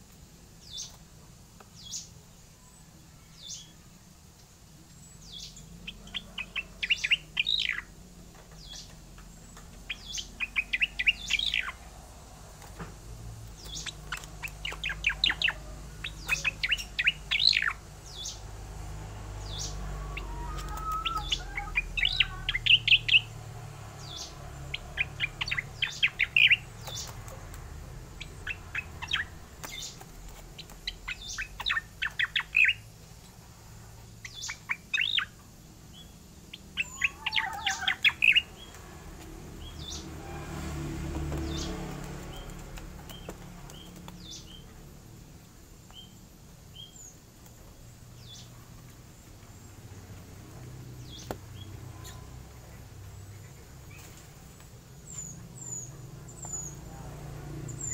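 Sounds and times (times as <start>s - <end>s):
bird chirping high notes: 19.5s - 23.3s.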